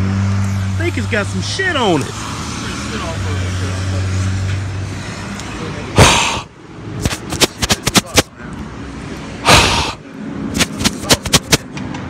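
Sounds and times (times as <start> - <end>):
loud rushes of noise: 1.9 - 12.0.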